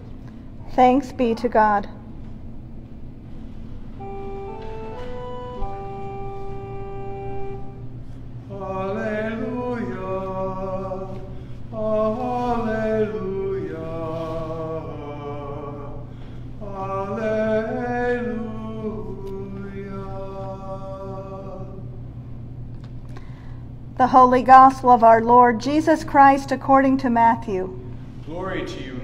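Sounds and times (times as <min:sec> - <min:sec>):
church organ: 0:03.3 - 0:22.0.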